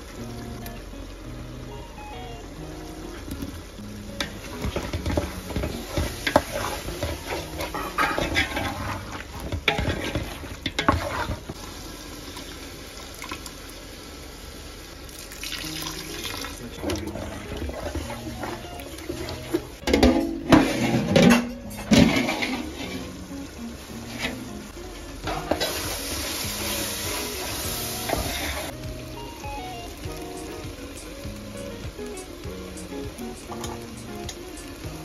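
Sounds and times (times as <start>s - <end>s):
faint background music: 0.0s - 12.4s, 15.1s - 35.0s
metal spoon scraping pot: 4.2s - 11.6s, 16.9s - 23.2s
liquid splashing into pot: 15.1s - 18.9s.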